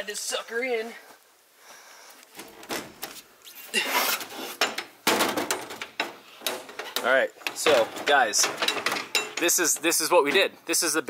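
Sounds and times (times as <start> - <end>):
metal clanking and knocking: 4.6 - 10.5.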